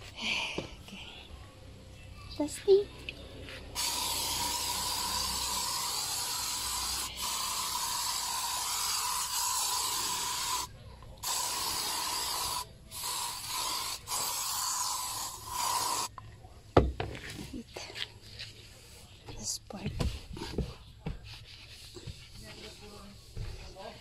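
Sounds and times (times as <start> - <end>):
spray nozzle hissing: 3.8 - 16.1.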